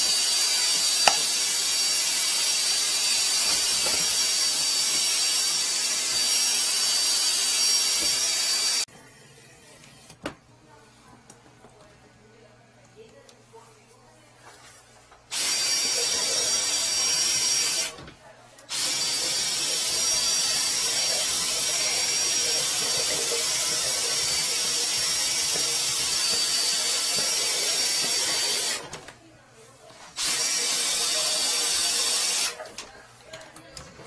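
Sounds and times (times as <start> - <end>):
power drill spinning drain shaft: 0.0 - 8.9, 15.3 - 18.0, 18.7 - 29.0, 30.2 - 32.8.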